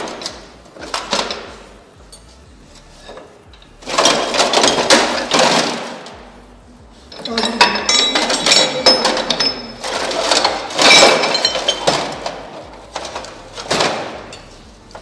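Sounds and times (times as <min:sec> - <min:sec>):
steel gear parts clanking: 0:03.0 - 0:06.0, 0:07.1 - 0:15.0.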